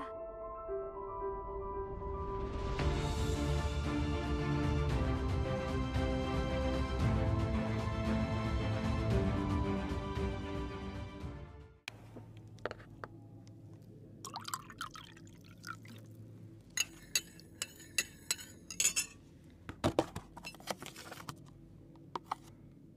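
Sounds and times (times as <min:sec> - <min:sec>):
tea pouring into glass cup: 0:14.2 - 0:16.2
liquid clinking against glass: 0:16.8 - 0:19.2.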